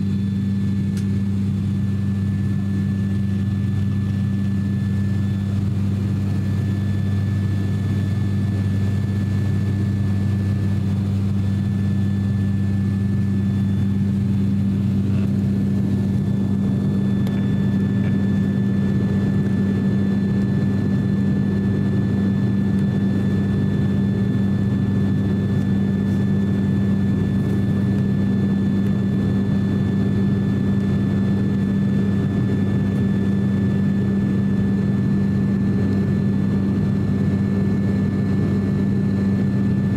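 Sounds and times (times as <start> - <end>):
faint high whine: 0.0 - 39.7
turboprop cabin drone: 0.0 - 39.9.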